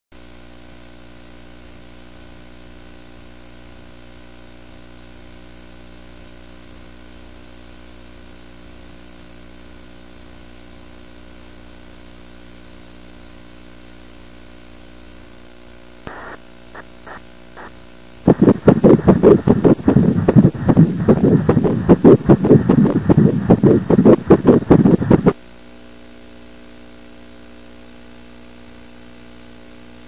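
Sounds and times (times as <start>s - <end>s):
electrical hum: 16.1s - 25.4s
electrical static hiss: 16.1s - 25.4s.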